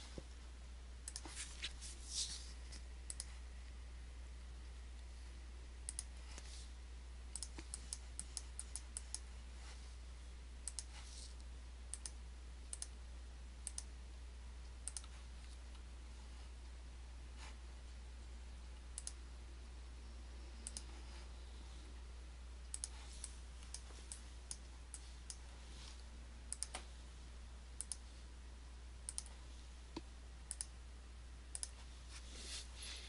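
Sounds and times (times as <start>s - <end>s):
faint low hum: 0.0s - 33.0s
computer mouse clicking: 1.0s - 1.4s, 2.7s - 3.4s, 5.8s - 6.5s, 7.3s - 9.3s, 10.6s - 13.0s, 13.6s - 13.9s, 14.8s - 15.8s, 18.8s - 19.2s, 20.6s - 21.0s, 22.6s - 25.5s, 26.5s - 26.9s, 27.8s - 28.1s, 29.0s - 30.8s, 31.5s - 31.8s.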